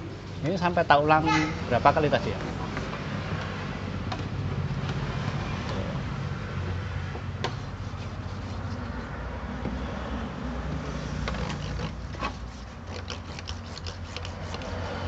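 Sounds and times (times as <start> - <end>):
pad scrubbing window glass: 7.3 - 9.3, 10.8 - 15.0.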